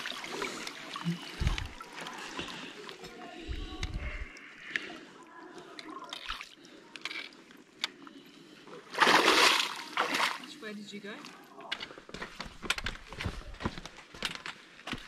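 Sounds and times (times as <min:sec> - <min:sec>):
water drips and clicks: 0:00.0 - 0:03.2
water lapping and trickling: 0:00.0 - 0:12.2
loud splash: 0:09.0 - 0:10.5.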